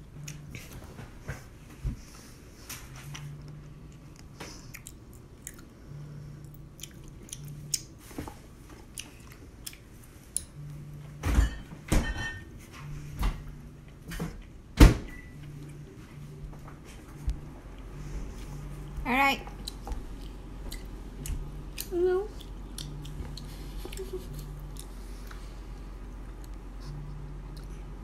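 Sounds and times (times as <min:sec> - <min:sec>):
chewing: 0:03.1 - 0:10.7, 0:19.5 - 0:28.0.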